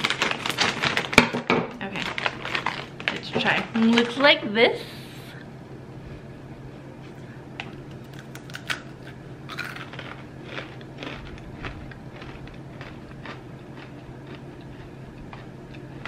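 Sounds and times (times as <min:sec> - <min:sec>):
crunchy snack being chewed: 0:02.0 - 0:03.1, 0:08.0 - 0:16.0.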